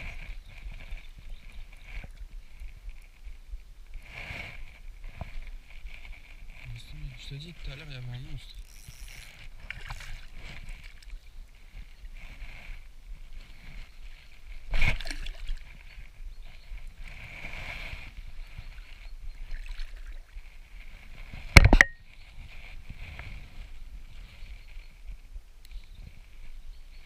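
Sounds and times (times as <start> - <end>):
water splashing and sloshing: 9.1 - 11.2, 14.7 - 16.0, 19.4 - 20.5.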